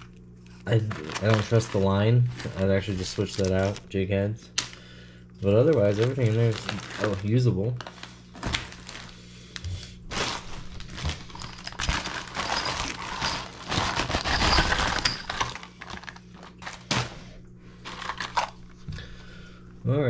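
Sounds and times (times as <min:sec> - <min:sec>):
plastic packaging crinkling: 0:00.0 - 0:03.9, 0:05.4 - 0:09.3, 0:10.0 - 0:17.2, 0:17.8 - 0:18.8.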